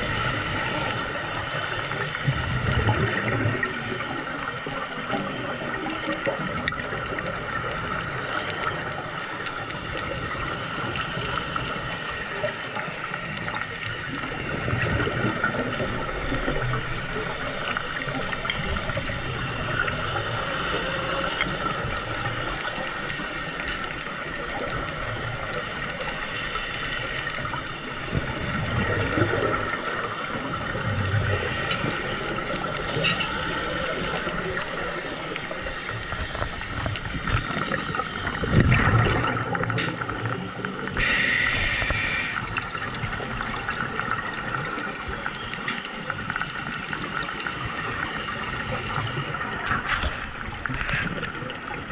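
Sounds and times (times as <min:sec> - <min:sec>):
regulator inhale hiss: 0:00.0 - 0:02.7, 0:10.4 - 0:13.6, 0:20.0 - 0:23.9, 0:26.0 - 0:27.6, 0:31.2 - 0:34.3, 0:39.8 - 0:43.2, 0:44.2 - 0:45.9
gurgling bubbles: 0:00.0 - 0:51.9
steady underwater hum: 0:00.0 - 0:51.9.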